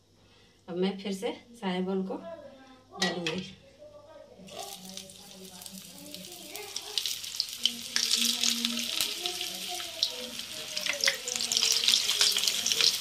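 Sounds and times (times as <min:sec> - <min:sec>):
hot oil sizzling and crackling: 0:04.4 - 0:13.0.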